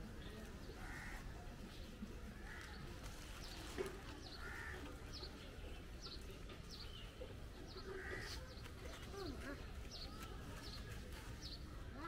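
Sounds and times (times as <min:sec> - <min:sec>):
small birds chirping: 0:00.0 - 0:12.0
crows cawing: 0:00.8 - 0:01.3, 0:04.4 - 0:04.9.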